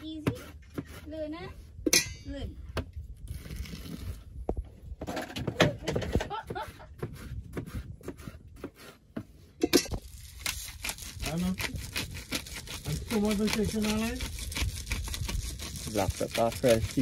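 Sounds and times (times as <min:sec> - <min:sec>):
knife slicing pineapple: 0:10.4 - 0:17.0.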